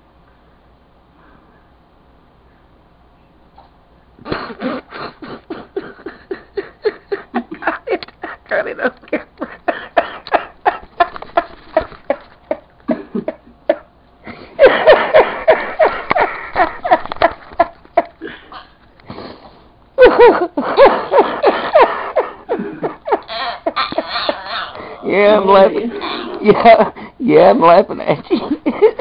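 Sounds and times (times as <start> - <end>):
person laughing: 4.2 - 18.8, 20.0 - 27.1, 28.3 - 29.0.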